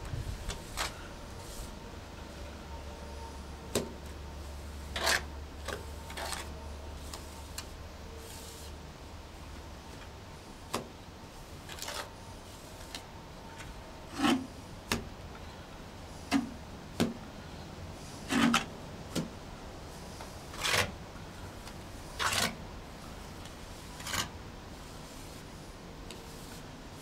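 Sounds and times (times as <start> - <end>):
mortar scraping on wall: 4.8 - 8.7, 11.6 - 12.1, 14.0 - 15.0, 18.2 - 19.3, 20.2 - 21.0, 21.6 - 25.5.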